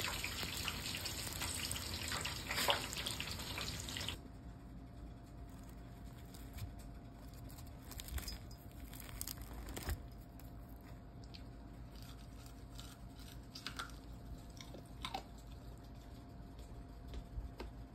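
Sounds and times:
low steady hum: 0.0 - 17.9
faint crackles and clicks: 5.5 - 11.6.

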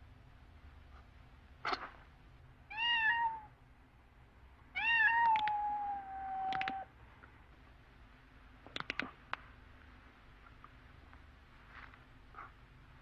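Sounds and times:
cat meowing: 2.7 - 3.5, 4.8 - 6.9
sharp clicks: 5.2 - 5.6, 6.5 - 6.8, 8.7 - 9.2.

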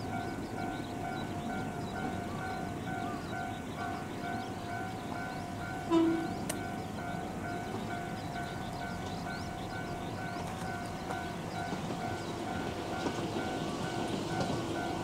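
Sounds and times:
bird chirps: 0.0 - 14.6
level-crossing alarm ringing: 0.0 - 15.0.

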